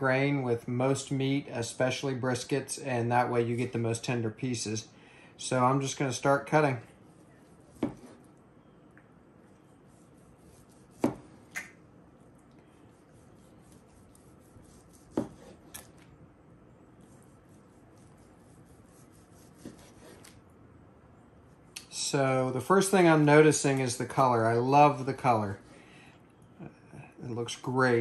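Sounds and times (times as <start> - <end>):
knife slicing meat: 7.1 - 8.3, 9.9 - 11.3, 12.9 - 16.0, 17.0 - 20.4
knife knocking on plastic board: 7.8 - 8.0.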